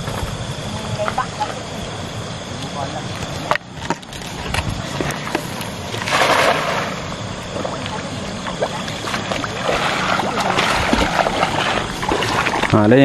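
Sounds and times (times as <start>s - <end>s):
water rushing: 4.8s - 13.0s.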